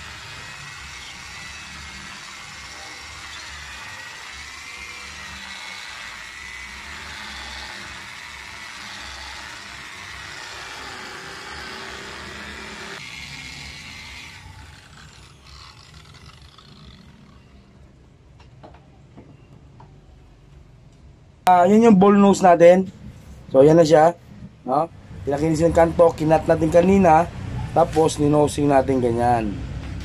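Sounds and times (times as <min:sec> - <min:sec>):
angle grinder polishing stone: 0:00.0 - 0:17.8.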